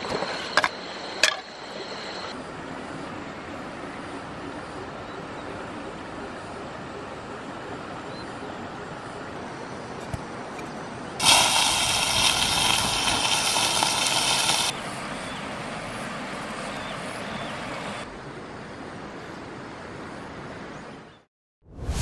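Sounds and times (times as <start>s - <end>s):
food sizzling in hot oil: 11.2s - 14.7s.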